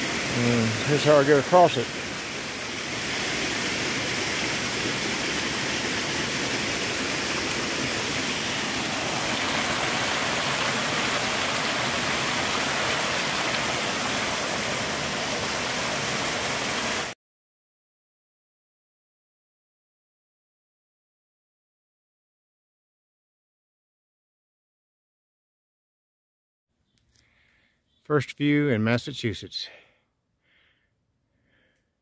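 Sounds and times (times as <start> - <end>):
creek rushing over boulders: 0.0 - 17.2.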